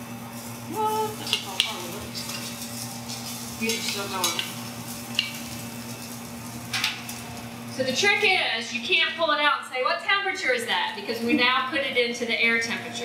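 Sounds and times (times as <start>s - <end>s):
patties sizzling in frying pan: 0.0s - 9.3s.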